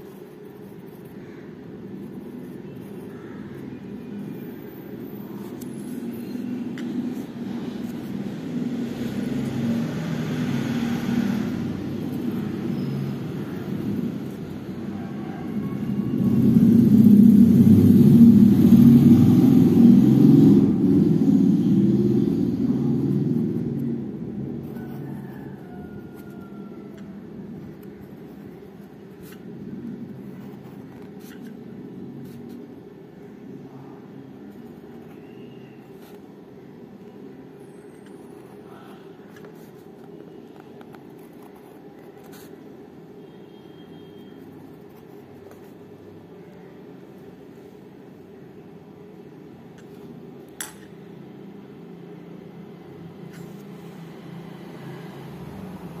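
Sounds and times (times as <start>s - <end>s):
steady low hum: 0.0s - 43.2s
pencil scratching on paper: 27.6s - 32.7s, 41.1s - 42.6s.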